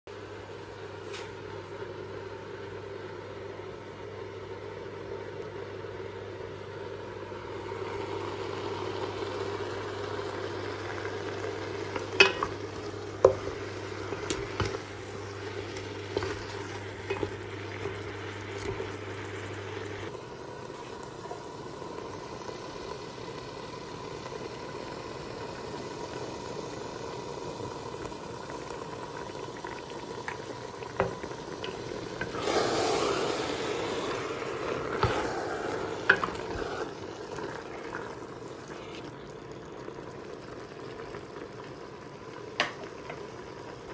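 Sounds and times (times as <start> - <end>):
spinach frying in a pot: 6.7 - 43.9
spoon knocking against pot: 12.2 - 12.5
wooden spoon stirring: 13.2 - 19.0.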